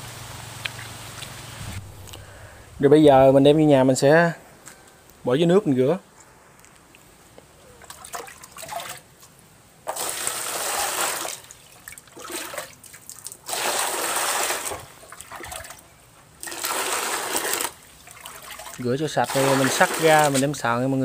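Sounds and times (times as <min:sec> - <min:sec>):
water pouring into plastic basin: 0:07.9 - 0:09.0, 0:09.9 - 0:15.8, 0:16.4 - 0:20.6.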